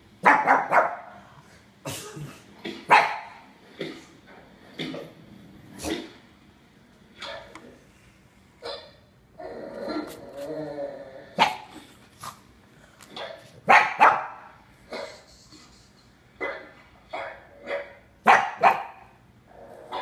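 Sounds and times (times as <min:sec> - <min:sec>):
dog barking: 0:00.2 - 0:01.1, 0:02.9 - 0:03.4, 0:11.4 - 0:11.7, 0:13.2 - 0:15.2, 0:16.4 - 0:19.1
dog growling: 0:08.6 - 0:12.4, 0:19.4 - 0:20.0.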